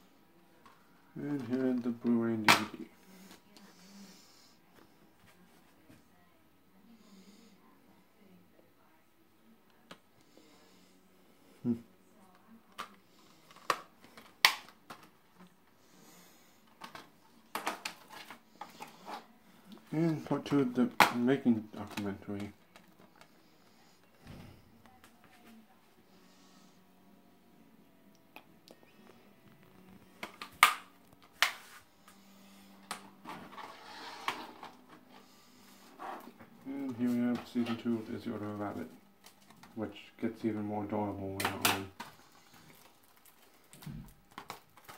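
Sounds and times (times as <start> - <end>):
plastic case clicks and snaps: 13.5 - 15.1, 30.2 - 31.6
packaging rustling: 41.4 - 44.9.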